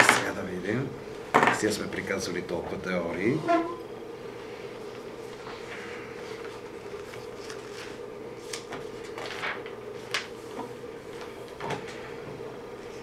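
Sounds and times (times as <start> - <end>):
steady room hum: 0.0 - 13.0
papers rustling on desk: 5.2 - 12.2.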